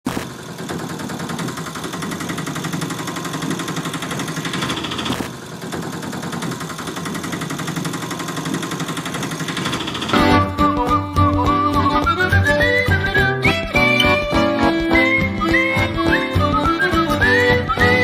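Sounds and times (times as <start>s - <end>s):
small motor rattling: 0.1s - 10.4s.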